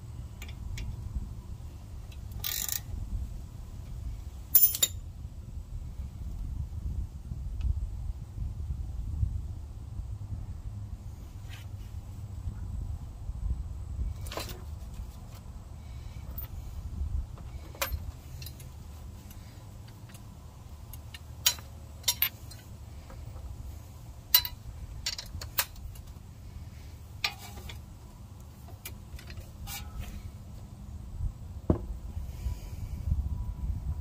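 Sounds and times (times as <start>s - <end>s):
metal tools clinking: 4.5s - 5.0s, 17.6s - 18.7s, 21.0s - 22.7s, 24.3s - 26.0s, 27.2s - 27.8s.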